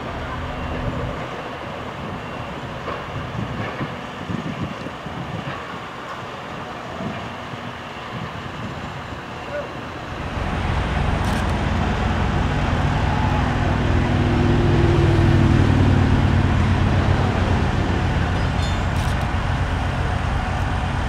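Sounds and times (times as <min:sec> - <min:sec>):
large engine running: 0:09.9 - 0:21.0.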